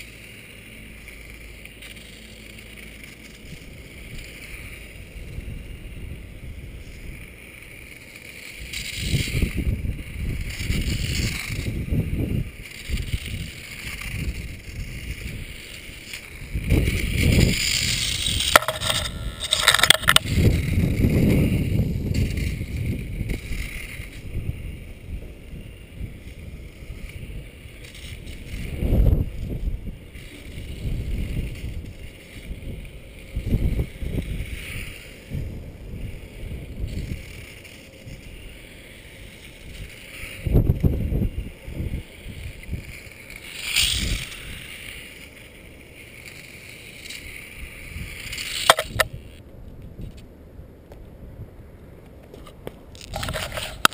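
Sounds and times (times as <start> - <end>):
toy motorcycle electric motor whining: 0.0 - 50.2, 52.3 - 53.9
sharp click: 18.3 - 20.7, 48.3 - 49.2.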